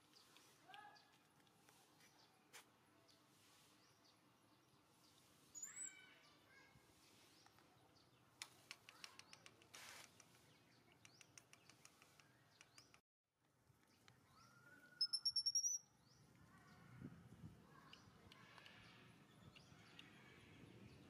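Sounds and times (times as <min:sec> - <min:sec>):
faint high chirping calls: 0:05.2 - 0:07.6, 0:13.9 - 0:16.8
brief rustle: 0:08.4 - 0:10.5.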